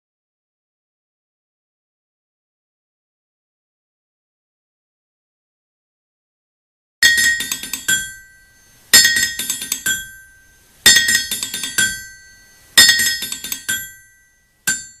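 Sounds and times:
hammer strikes ringing on anvil: 0:07.0 - 0:15.0.

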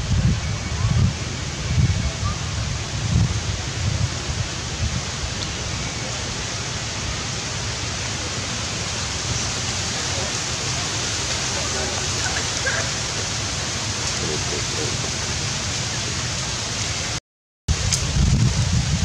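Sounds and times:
steady rushing hiss: 0:00.0 - 0:19.0.

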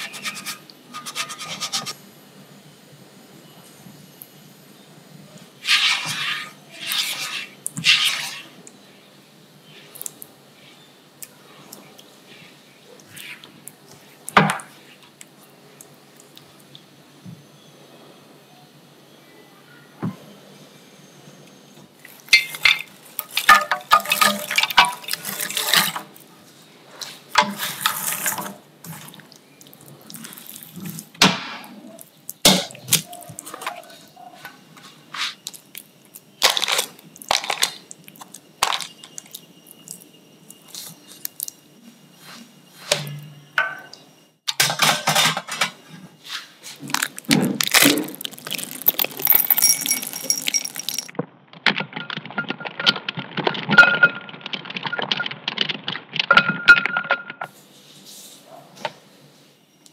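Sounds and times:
biscuit pieces clattering: 0:36.4 - 0:39.4, 0:46.9 - 0:57.0
chocolate chips pattering into bowl: 0:46.9 - 0:56.2.

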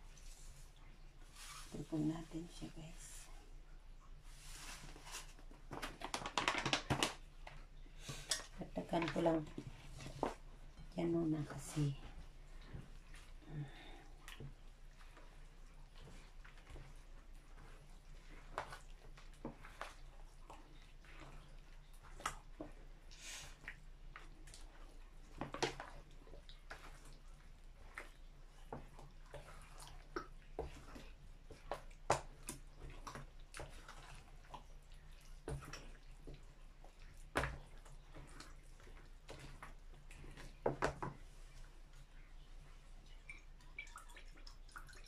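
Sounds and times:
wet squelching: 0:11.1 - 0:45.0.

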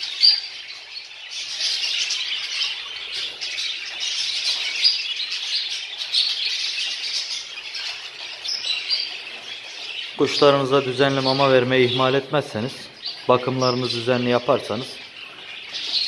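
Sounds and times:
budgerigars chattering and chirping: 0:00.0 - 0:16.0.

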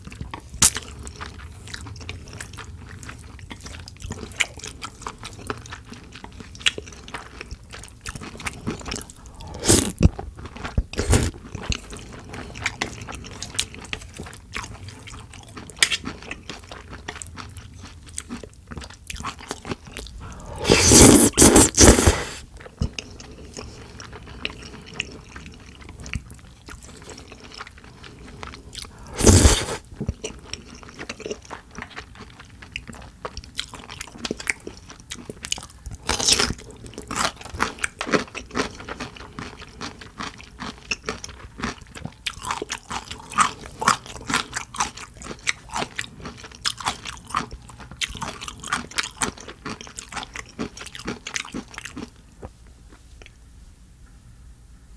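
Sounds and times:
wet chewing with crunching: 0:00.0 - 0:53.4
loud bites: 0:20.2 - 0:22.4, 0:29.0 - 0:29.8.

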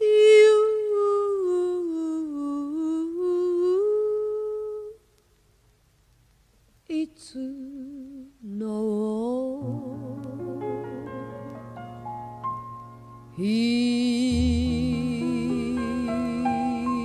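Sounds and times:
woman humming: 0:13.4 - 0:17.0.

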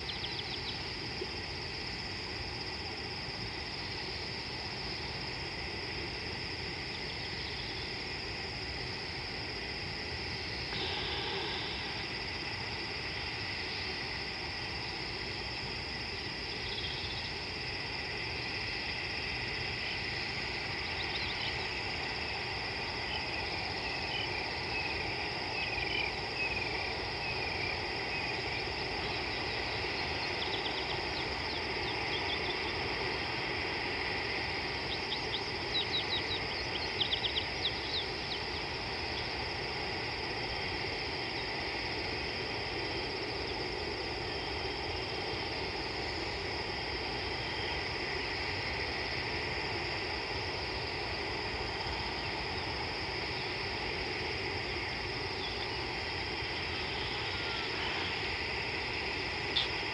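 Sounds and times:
background hiss: 0:00.0 - 0:59.9
insects ringing: 0:00.0 - 0:59.9.

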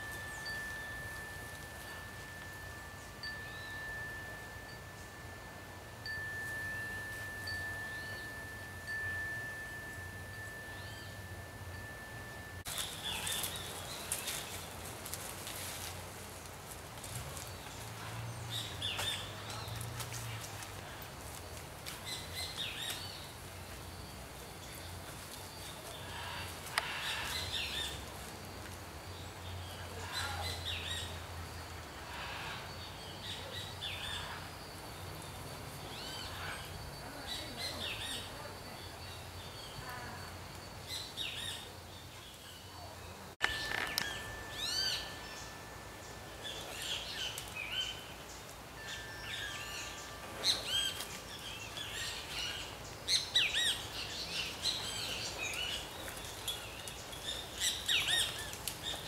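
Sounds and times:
thin whistled bird notes: 0:00.0 - 0:14.8, 0:35.2 - 0:59.0
birds chirping: 0:00.0 - 0:15.1, 0:17.1 - 0:21.1, 0:21.8 - 0:59.0.

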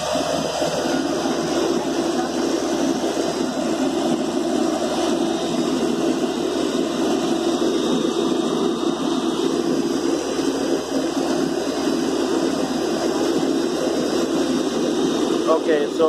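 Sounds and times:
drilling rig engine running: 0:00.0 - 0:16.0.

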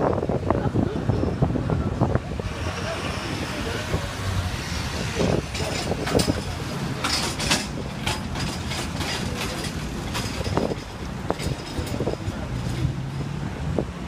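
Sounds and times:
city street traffic rumble: 0:00.0 - 0:14.0
clatters and knocks: 0:05.3 - 0:12.9.

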